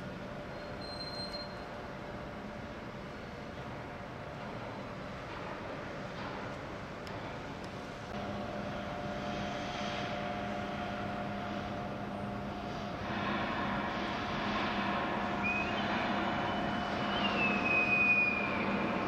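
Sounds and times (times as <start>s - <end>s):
mechanical drone with low hum: 1.4s - 19.0s
high whine: 8.2s - 19.0s.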